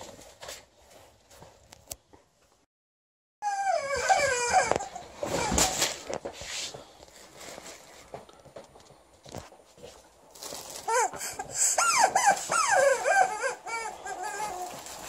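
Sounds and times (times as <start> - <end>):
dog whining howls: 3.4 - 5.7, 11.7 - 15.0
plastic bag crinkling: 5.2 - 8.3, 10.3 - 11.1, 14.2 - 15.0.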